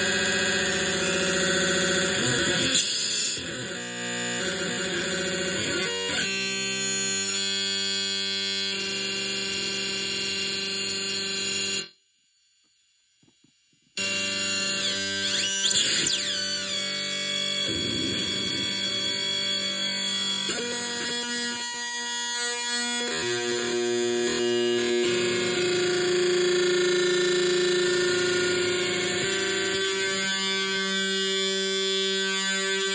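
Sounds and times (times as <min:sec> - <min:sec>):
synthesizer droning buzzing tones: 0:14.0 - 0:32.9.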